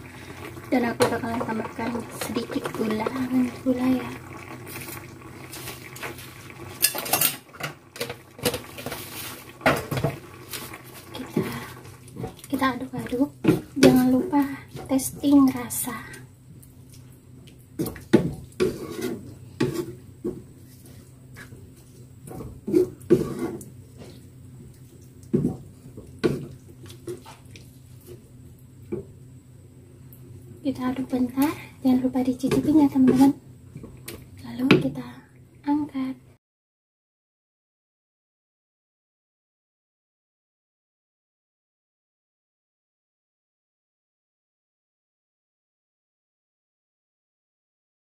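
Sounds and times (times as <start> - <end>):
low steady hum: 0.0 - 36.4
spatula stirring stew in pan: 17.8 - 28.3.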